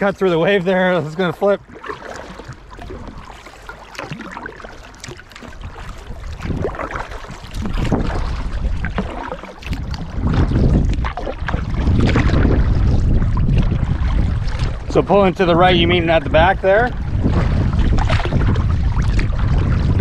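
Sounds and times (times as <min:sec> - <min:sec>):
water splashing around kayak: 0:00.0 - 0:20.0
wind buffeting microphone: 0:05.4 - 0:20.0.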